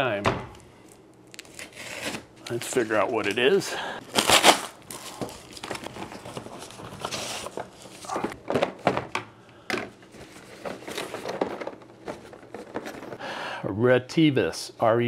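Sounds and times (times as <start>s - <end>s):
cardboard rustling and scraping: 4.2s - 8.9s, 10.1s - 13.2s.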